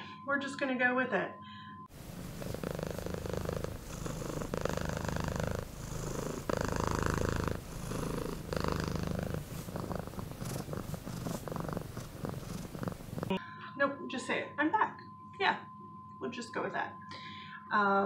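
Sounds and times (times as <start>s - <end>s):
cat purring: 1.9s - 13.4s.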